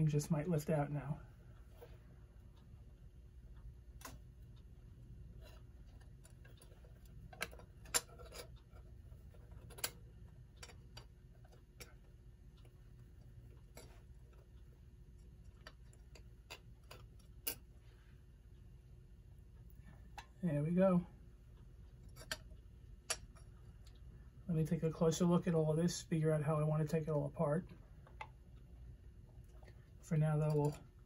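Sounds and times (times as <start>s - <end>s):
clicks and taps of clock parts: 5.4s - 17.8s, 21.9s - 24.0s, 29.6s - 30.9s.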